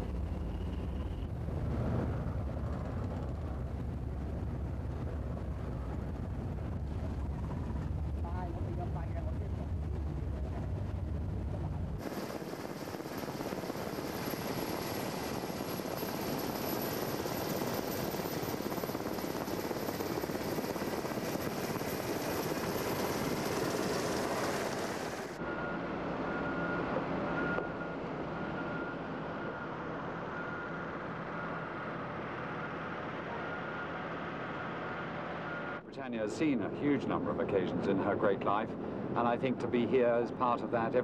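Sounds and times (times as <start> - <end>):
machinery hum: 0.0 - 17.7
helicopter engine and rotor: 0.0 - 35.8.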